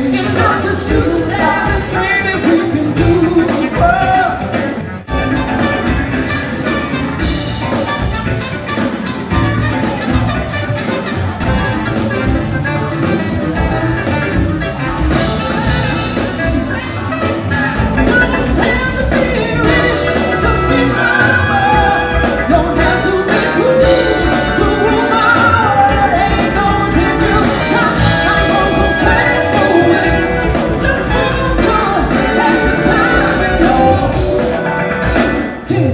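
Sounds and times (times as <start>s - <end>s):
bass guitar: 0.0s - 35.9s
drum kit: 0.0s - 35.9s
keyboard: 0.0s - 35.9s
horn section: 3.3s - 35.9s
person singing: 15.4s - 35.9s.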